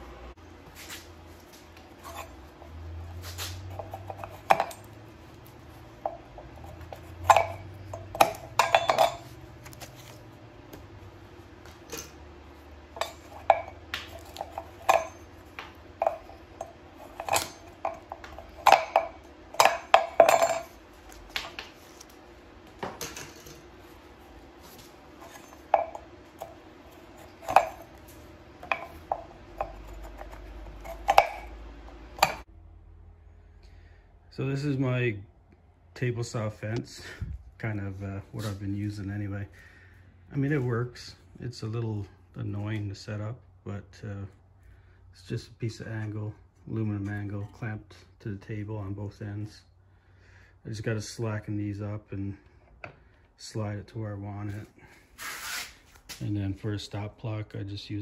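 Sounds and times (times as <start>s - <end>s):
metal rods clinking: 6.8s - 9.4s, 13.0s - 15.4s, 16.0s - 20.8s.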